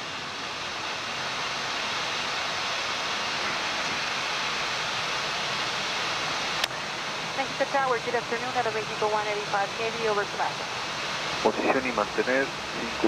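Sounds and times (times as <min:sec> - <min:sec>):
rush of air in cockpit: 0:00.0 - 0:08.5.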